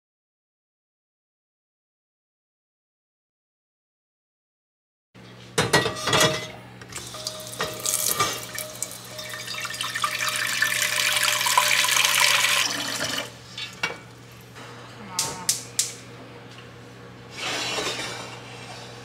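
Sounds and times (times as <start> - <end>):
tap water filling a pot: 7.0 - 13.3.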